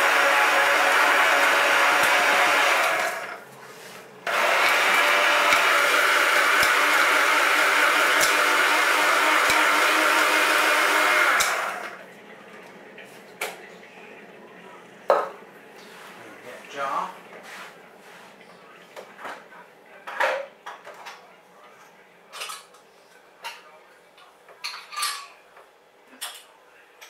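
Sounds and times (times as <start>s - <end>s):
electric grinder grinding acorns: 0.0s - 3.4s, 4.3s - 12.0s.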